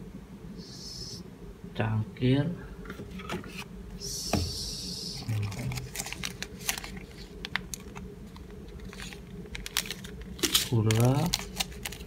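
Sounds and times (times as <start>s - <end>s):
paper sachets rustling: 5.2s - 12.0s.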